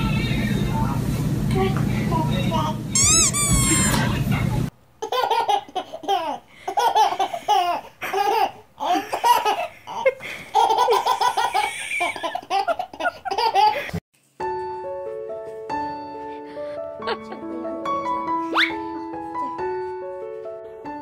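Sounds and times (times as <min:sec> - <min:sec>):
baby laughing: 0:03.0 - 0:04.2, 0:05.0 - 0:14.0
piano music: 0:14.4 - 0:21.0.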